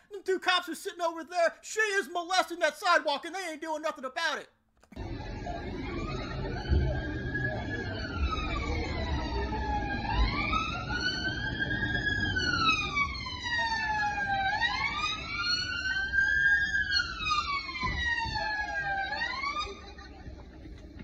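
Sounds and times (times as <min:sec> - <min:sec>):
police siren wailing: 0:05.0 - 0:21.0.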